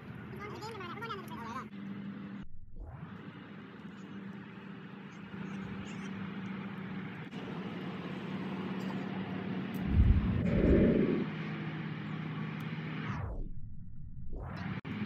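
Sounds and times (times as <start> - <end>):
loud low rumble: 9.8 - 11.3, 13.2 - 14.6.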